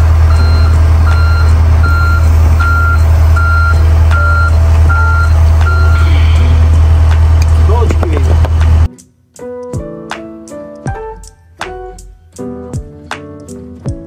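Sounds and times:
backup alarm beeping: 0:00.0 - 0:06.8
engine droning: 0:00.0 - 0:08.9.

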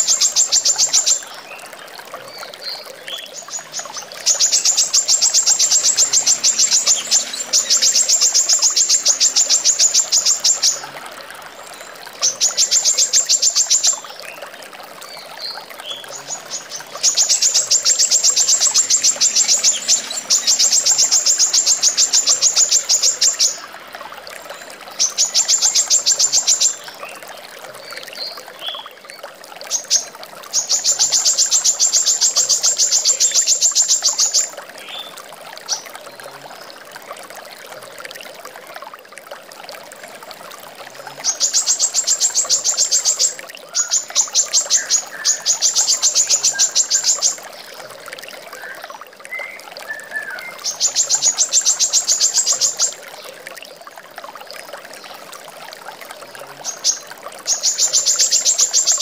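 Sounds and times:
trickling water: 0:00.0 - 0:59.0.

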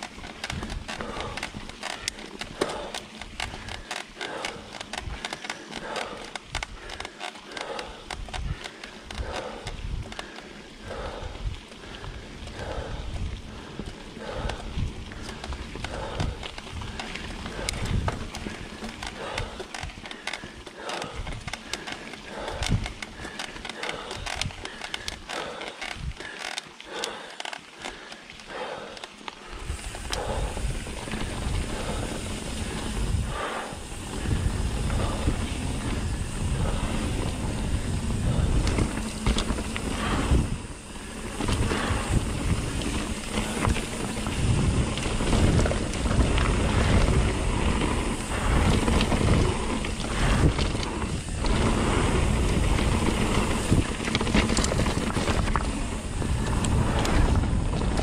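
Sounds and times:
bike tyres rolling on trail: 0:00.0 - 0:58.0
wind buffeting microphone: 0:08.2 - 0:25.3, 0:29.6 - 0:58.0.

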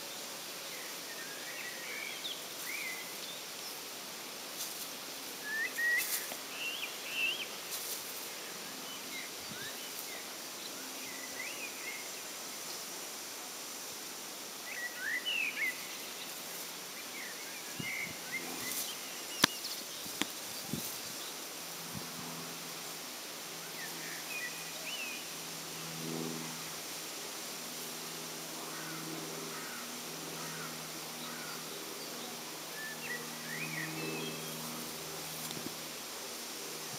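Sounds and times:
steady background hiss: 0:00.0 - 0:36.9
small birds chirping: 0:14.8 - 0:21.5.

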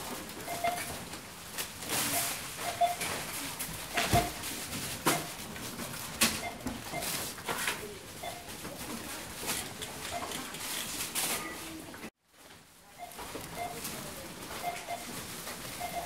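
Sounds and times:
items knocking and rustling: 0:00.0 - 0:10.1
barcode scanner beeps: 0:00.4 - 0:00.9, 0:02.1 - 0:03.1, 0:06.4 - 0:07.2, 0:08.2 - 0:08.5, 0:14.6 - 0:15.1, 0:15.8 - 0:16.0.

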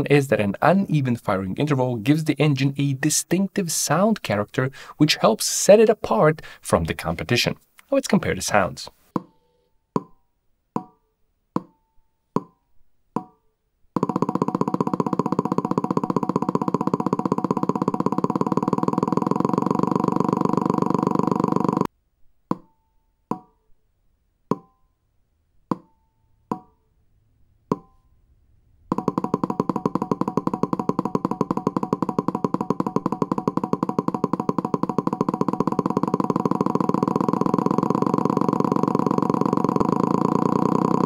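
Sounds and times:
simulated engine buzzing: 0:14.0 - 0:21.9, 0:28.9 - 0:41.0.

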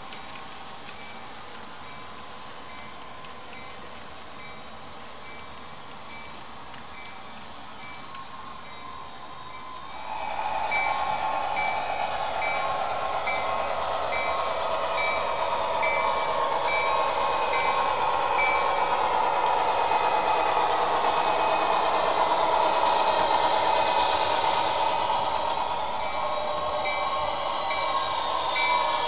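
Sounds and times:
model train whirring on track: 0:00.0 - 0:29.0.

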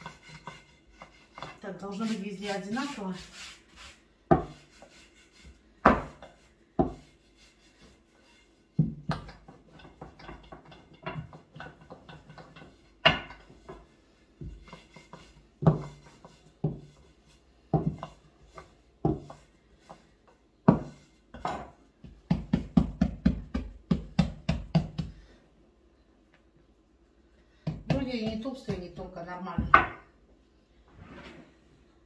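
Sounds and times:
rolling pin knocking on board: 0:20.6 - 0:25.2, 0:29.6 - 0:30.0.

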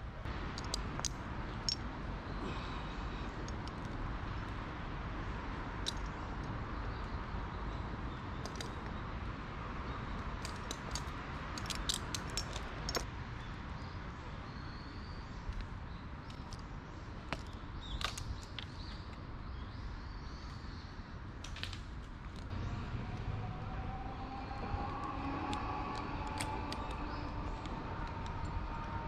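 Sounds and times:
carabiners clicking: 0:00.5 - 0:01.8, 0:05.8 - 0:06.1, 0:10.4 - 0:13.1
steady low rumble: 0:22.2 - 0:29.0.

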